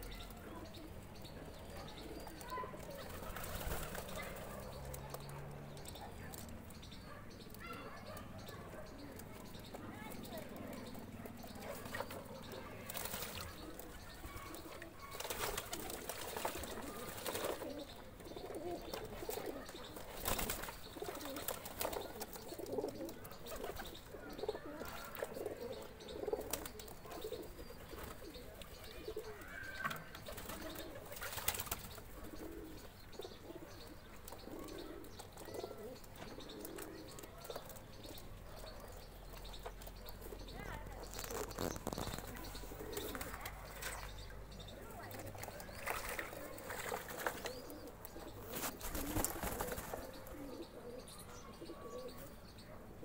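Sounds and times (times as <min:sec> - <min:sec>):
pigeons cooing: 0:00.0 - 0:53.0
wings flapping and water splashing: 0:02.2 - 0:05.4, 0:11.7 - 0:17.9, 0:18.5 - 0:22.8, 0:30.0 - 0:32.1, 0:44.9 - 0:47.8, 0:48.4 - 0:50.2.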